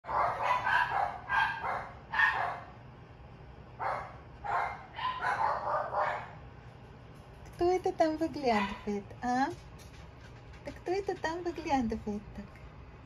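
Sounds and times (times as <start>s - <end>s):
dog barking: 0.0s - 2.7s, 3.8s - 6.4s, 8.6s - 8.9s.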